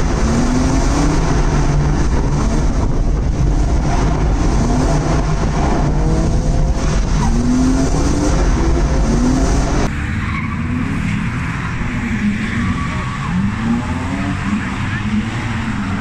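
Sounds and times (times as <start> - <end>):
car engine revving hard: 0.0 - 9.9
tyres skidding and squealing: 0.0 - 16.0.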